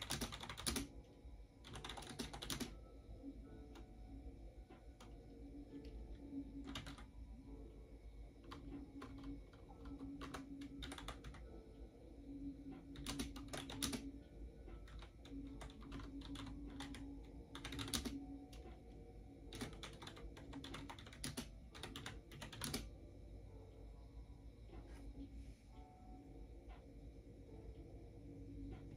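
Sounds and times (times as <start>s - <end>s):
computer keyboard typing: 0.0s - 1.0s, 1.6s - 2.8s, 4.8s - 7.2s, 8.4s - 11.6s, 12.7s - 23.0s.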